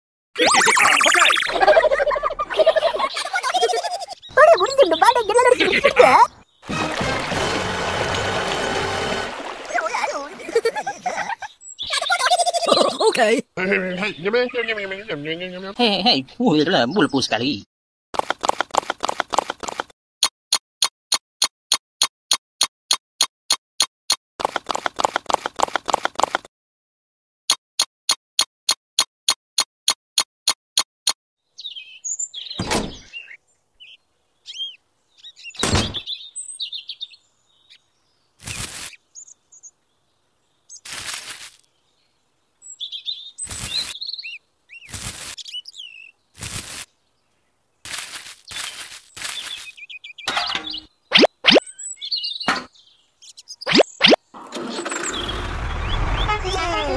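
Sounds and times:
birds chirping: 0.4 - 17.7, 31.4 - 56.9.

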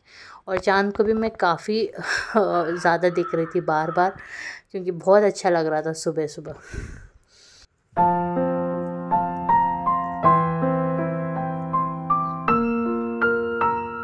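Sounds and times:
piano music: 8.0 - 14.0.

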